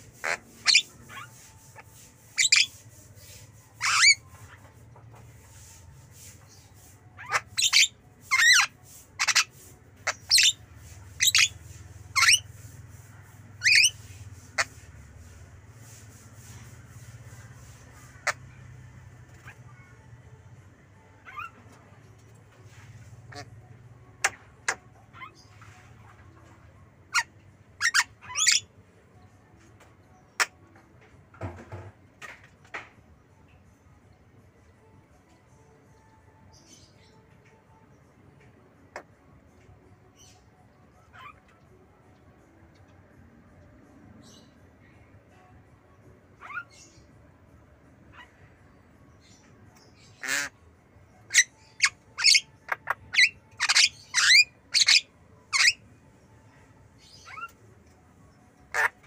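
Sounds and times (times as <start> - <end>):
myna bird calling: 0.2 - 1.5, 2.3 - 2.8, 7.2 - 12.5, 13.6 - 14.0, 27.1 - 28.7, 49.2 - 50.6, 51.3 - 55.8.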